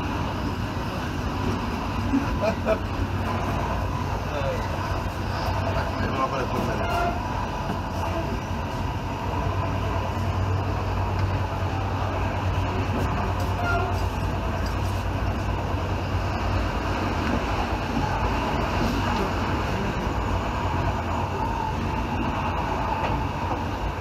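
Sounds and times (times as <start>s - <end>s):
train running inside carriage: 0.0s - 24.0s.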